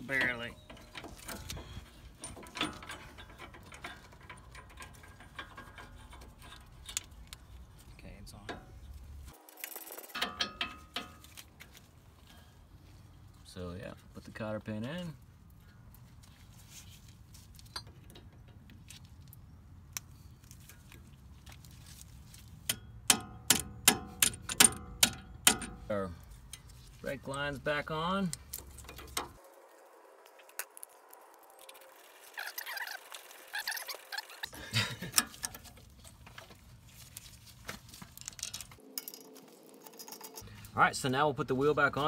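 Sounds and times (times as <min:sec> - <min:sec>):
small metal clicks and ticks: 0:00.1 - 0:12.4
hand tools clicking and tapping: 0:00.2 - 0:07.4, 0:09.9 - 0:11.8, 0:22.6 - 0:26.8, 0:32.5 - 0:36.6.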